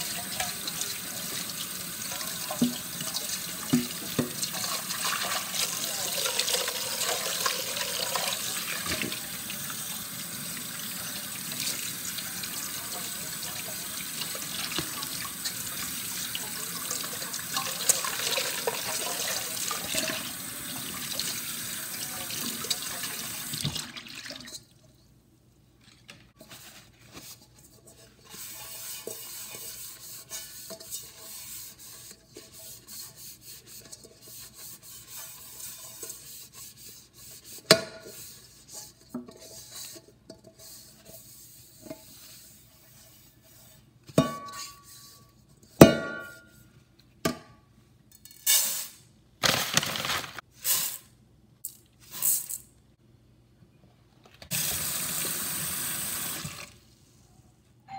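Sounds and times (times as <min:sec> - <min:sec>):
tap water running into sink: 0:00.0 - 0:24.5
pot knocking against sink: 0:02.5 - 0:02.9
cloth rubbing pot: 0:26.4 - 0:45.8.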